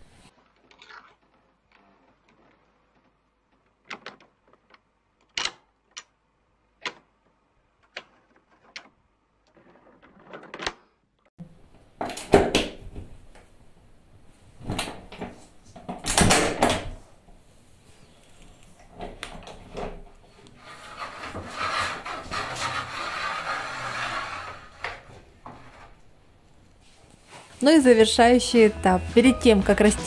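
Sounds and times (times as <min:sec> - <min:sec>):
lock and bolt rattling: 0:03.6 - 0:11.0.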